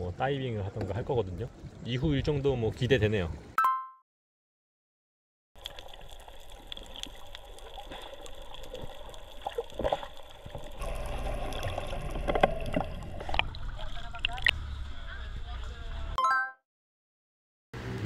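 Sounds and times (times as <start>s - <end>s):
water gurgling and bubbling: 5.6s - 14.6s.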